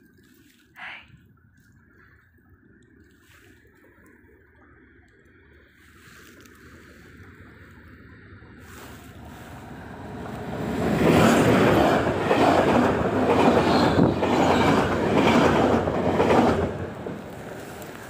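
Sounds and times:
train passing with clatter: 0:07.4 - 0:18.0.

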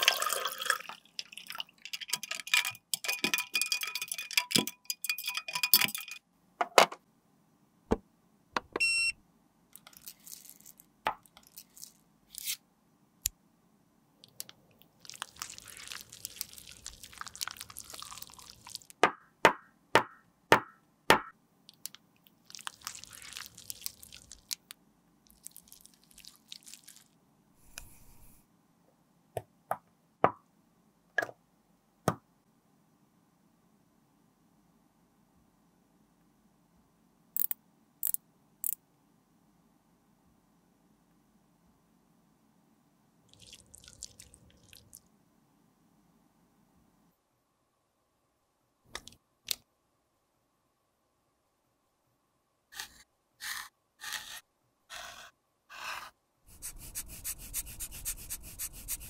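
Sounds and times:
water splashing in a glass: 0:00.0 - 0:02.4, 0:43.3 - 0:45.0.

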